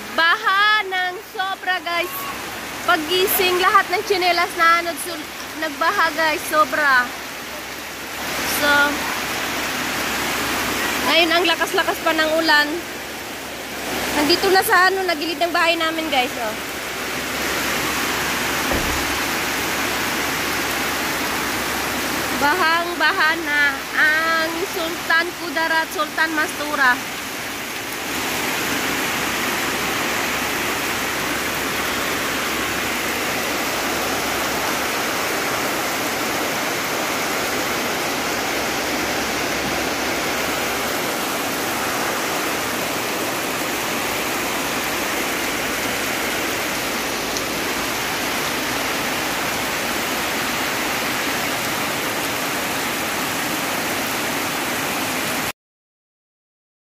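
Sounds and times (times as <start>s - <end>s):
heavy rain pouring: 0.0s - 55.5s.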